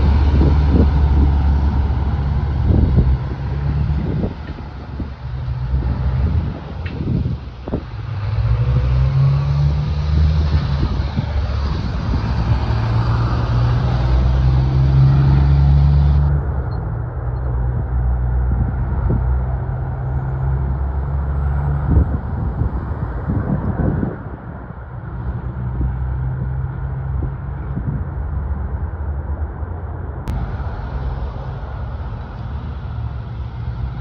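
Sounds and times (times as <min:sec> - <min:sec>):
truck diesel engine drone: 0:00.0 - 0:34.0
tyre and road noise: 0:00.0 - 0:34.0.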